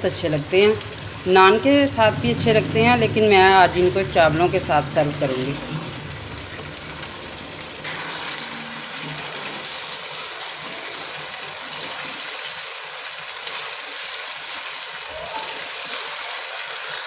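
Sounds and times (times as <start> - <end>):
meat and potatoes sizzling in oil: 0.1 - 17.0
spatula scraping a wok: 7.8 - 9.9.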